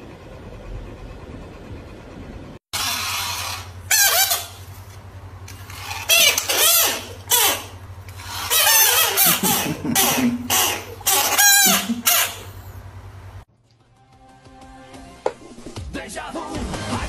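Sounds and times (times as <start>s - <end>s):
frogs screaming: 5.7s - 12.6s.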